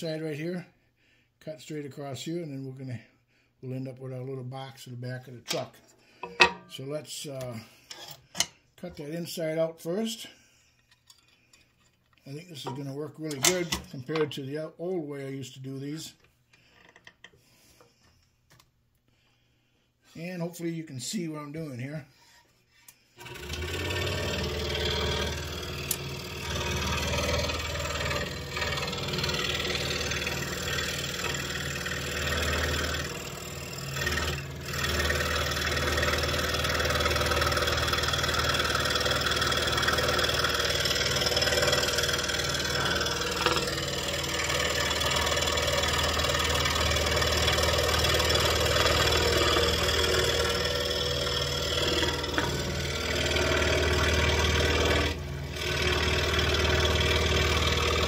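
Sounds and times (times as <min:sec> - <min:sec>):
scroll saw cutting wood: 0:23.2 - 0:58.0.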